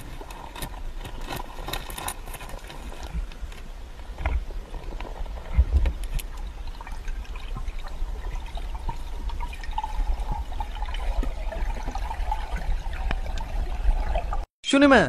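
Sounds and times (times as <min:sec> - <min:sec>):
small clicks and crackles: 0:00.0 - 0:13.6
underwater rumble of moving water: 0:00.0 - 0:14.5.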